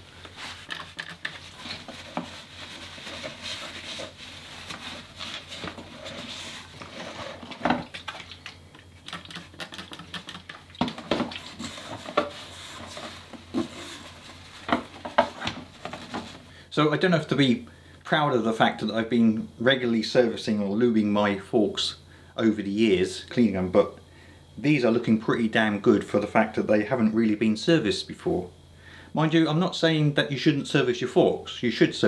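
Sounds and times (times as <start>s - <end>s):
paper towel rustling: 0.0s - 8.4s, 11.0s - 16.5s.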